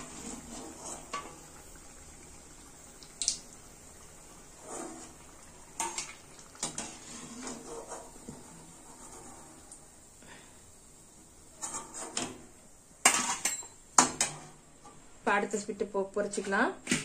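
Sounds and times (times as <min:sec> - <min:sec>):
oil sizzling: 0:00.0 - 0:15.8
metal spoon clinking on pan: 0:13.0 - 0:14.3.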